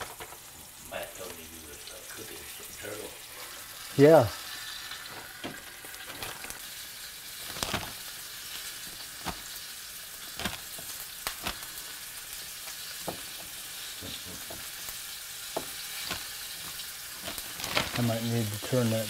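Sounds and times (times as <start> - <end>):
meat sizzling in hot oil: 0.0 - 19.0
oil popping: 4.6 - 18.8.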